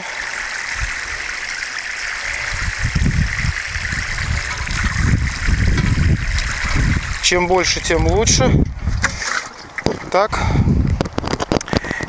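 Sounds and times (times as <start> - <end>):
water pouring onto soil: 0.0 - 8.4.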